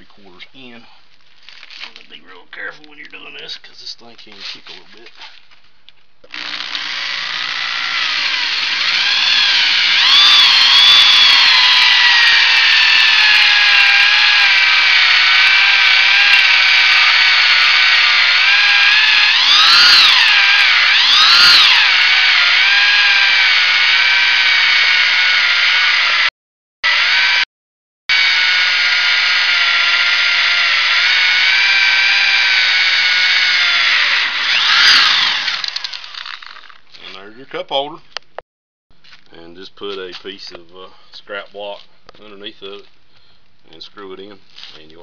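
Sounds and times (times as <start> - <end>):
electric drill whining: 6.2 - 27.5, 28.1 - 36.8
hole saw cutting wood: 6.3 - 27.5, 28.1 - 37.2.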